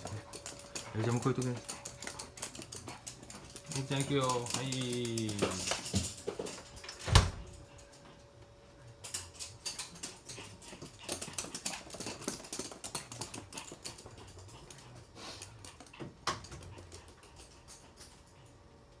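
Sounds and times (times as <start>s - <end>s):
dog claws clicking on floor: 0.0s - 18.5s.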